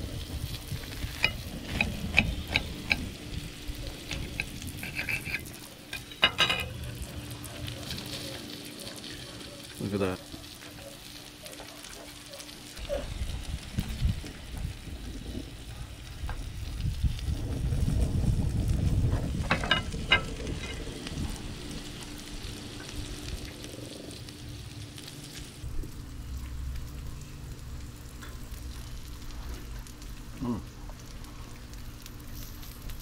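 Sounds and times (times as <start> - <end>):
food sizzling on a griddle: 0.0 - 33.0
low camera rumble: 12.8 - 33.0.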